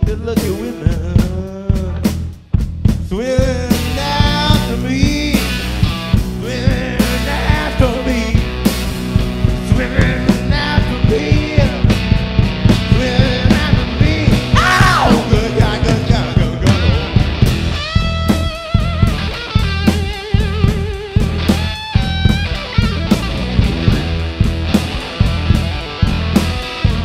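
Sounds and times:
man singing into microphone: 0.0 - 2.1, 3.0 - 5.6, 6.4 - 8.5, 9.6 - 12.0, 12.9 - 17.2
drum kit beat: 0.0 - 27.0
electric bass: 0.0 - 27.0
electric guitar: 3.4 - 27.0.

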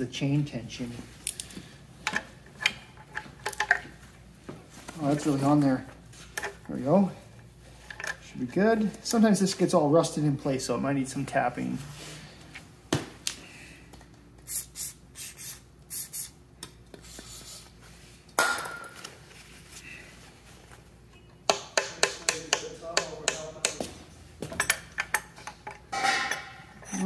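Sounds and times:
steel tools clinking on metal: 24.6 - 27.0.

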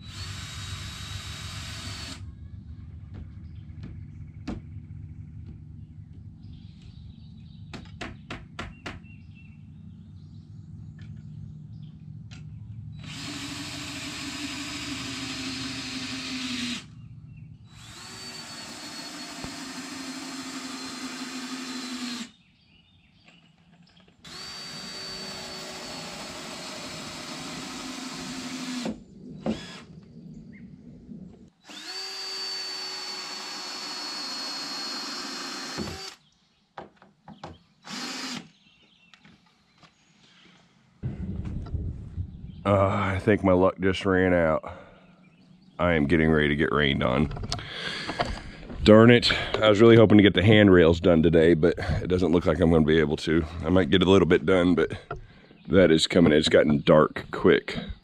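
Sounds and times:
power tool whining: 0.0 - 3.3, 12.3 - 22.4, 24.2 - 30.0, 31.5 - 36.2, 37.4 - 38.6.

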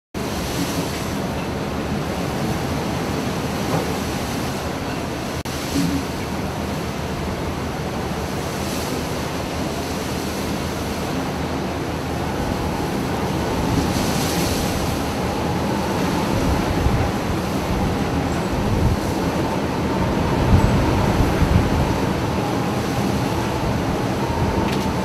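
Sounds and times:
heavy waves breaking: 0.2 - 25.0
wind rushing: 11.9 - 25.0.

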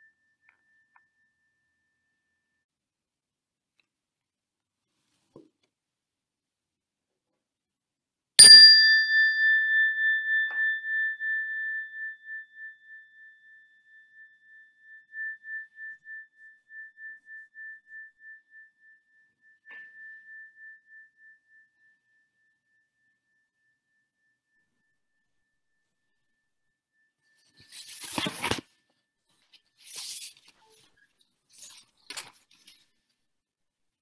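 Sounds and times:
meditation bell ringing: 8.4 - 18.4.

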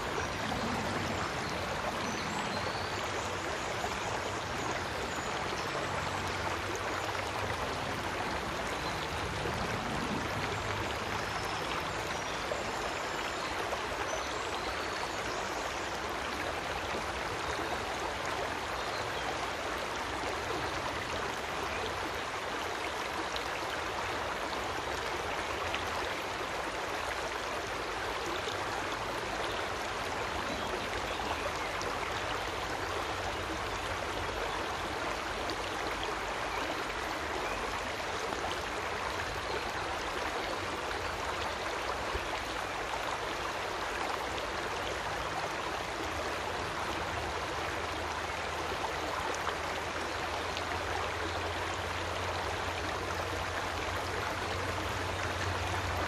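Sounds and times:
creek water rushing: 0.0 - 56.0.

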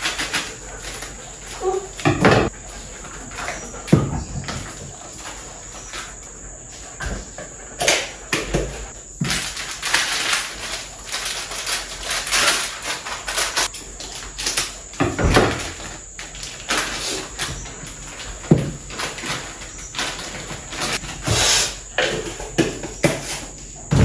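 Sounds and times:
plastic packaging crinkling: 9.2 - 15.0.

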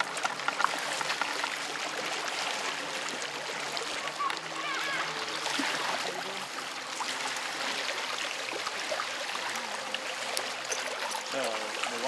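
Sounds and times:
water rushing along boat hull: 0.0 - 12.0.

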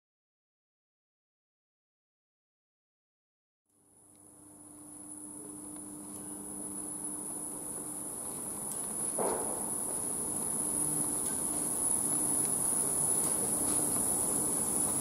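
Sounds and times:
electric train whine and hum: 3.7 - 15.0.

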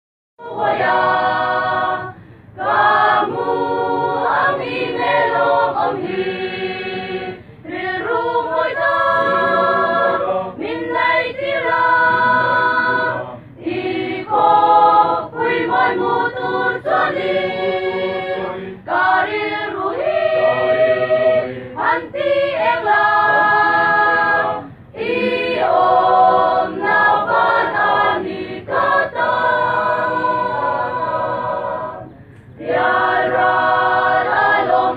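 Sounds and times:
mixed choir singing: 0.4 - 34.9.

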